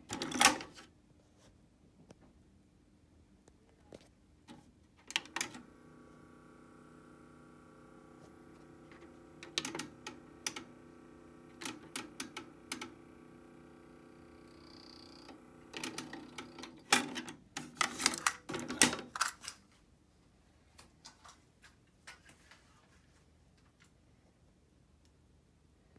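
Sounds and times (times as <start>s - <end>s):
cassette deck mechanism clicking: 5.0s - 19.5s
motor hum: 5.1s - 17.2s.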